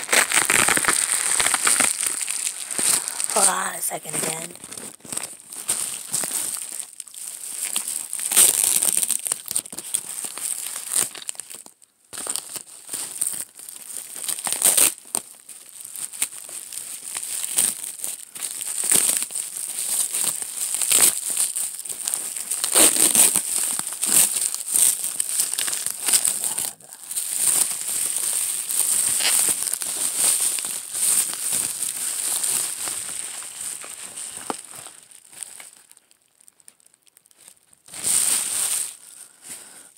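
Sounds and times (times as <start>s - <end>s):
packaging wrap crinkling and tearing: 0.0s - 39.9s.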